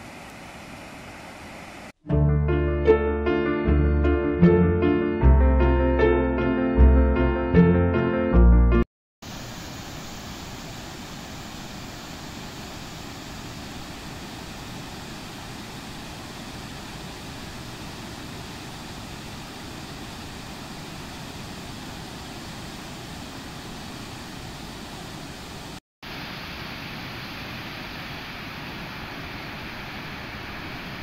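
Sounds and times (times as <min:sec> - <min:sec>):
waterfall and rapids rushing: 0:09.2 - 0:31.0.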